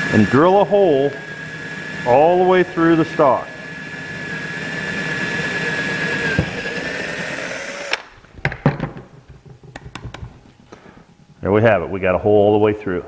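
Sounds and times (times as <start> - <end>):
power drill whining: 0.0 - 8.2.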